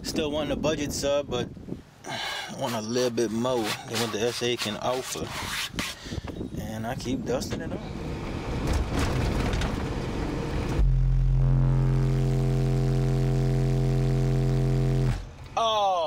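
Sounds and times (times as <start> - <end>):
rubbing and handling noise: 2.5 - 6.1
deep bass tone from subwoofer: 10.6 - 15.4.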